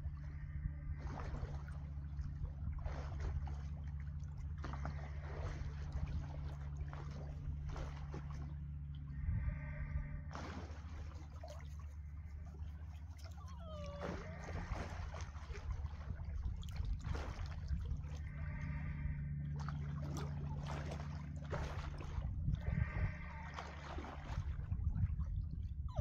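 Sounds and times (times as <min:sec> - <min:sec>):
steady low hum: 0:00.0 - 0:26.0
water splashing and swishing: 0:00.0 - 0:26.0.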